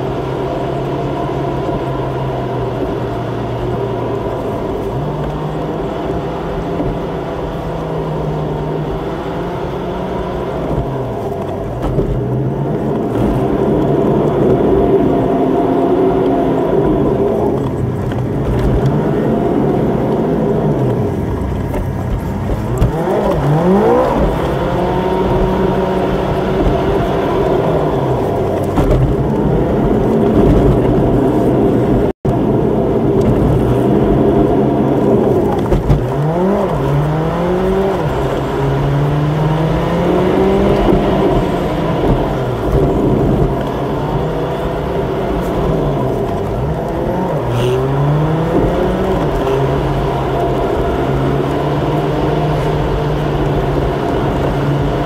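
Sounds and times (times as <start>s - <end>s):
car engine and road noise: 0.0s - 55.0s.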